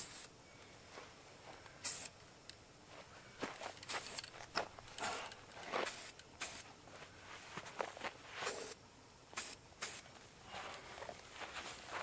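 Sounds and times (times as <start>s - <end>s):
spray paint can hissing: 0.0s - 0.3s, 1.7s - 2.2s, 3.7s - 6.8s, 8.4s - 10.2s.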